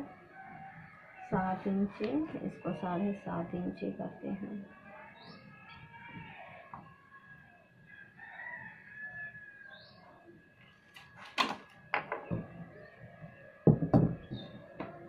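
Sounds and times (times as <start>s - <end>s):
rooster crowing: 0.0s - 2.6s, 7.8s - 10.2s.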